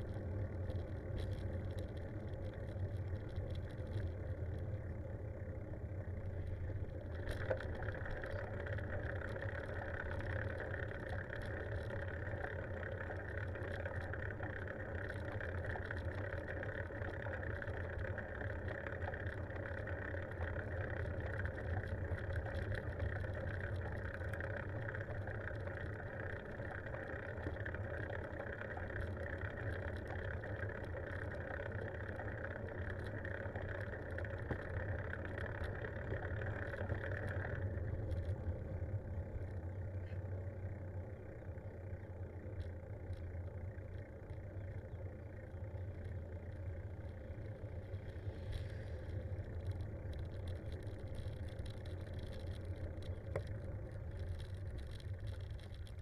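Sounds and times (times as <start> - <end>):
bicycle tyre noise hissing: 48.1 - 49.5.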